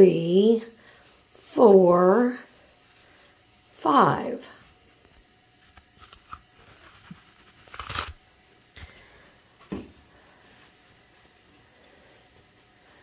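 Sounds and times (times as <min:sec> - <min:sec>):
toilet paper rustling: 0:05.9 - 0:08.2
toilet paper tearing: 0:05.9 - 0:08.2.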